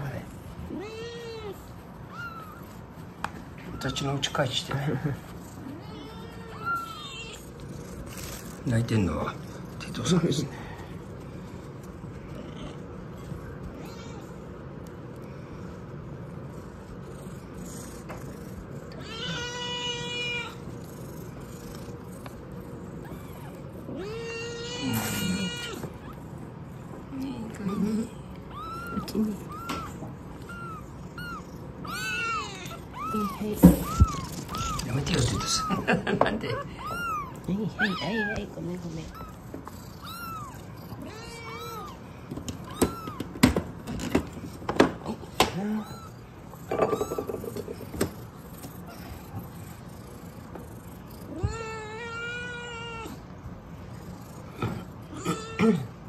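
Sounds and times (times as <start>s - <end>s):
kitten mewing: 0.0s - 3.0s, 18.0s - 43.6s, 44.9s - 49.6s.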